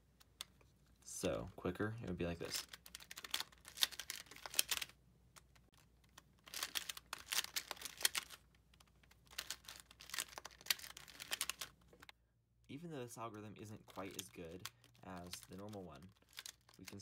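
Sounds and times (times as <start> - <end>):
twisty puzzle clicking: 2.4 - 12.1, 13.7 - 17.0.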